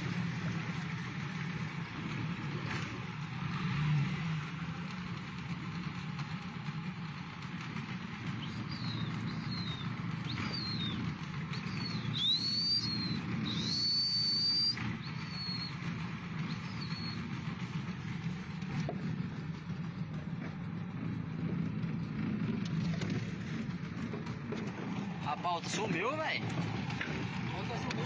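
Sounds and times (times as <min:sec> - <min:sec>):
high whistles: 0:08.4 - 0:17.6.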